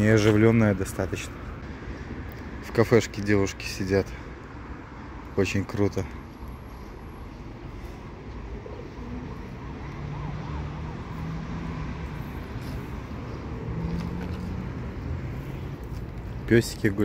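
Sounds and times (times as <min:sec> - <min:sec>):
traffic rumble: 0:00.0 - 0:17.0
vehicles passing: 0:00.0 - 0:17.0.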